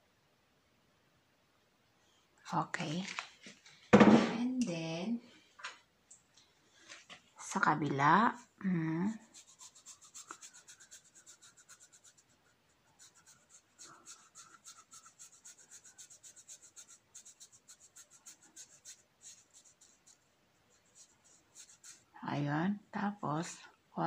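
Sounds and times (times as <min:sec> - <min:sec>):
fingers rubbing cloth strip: 0:09.2 - 0:22.2.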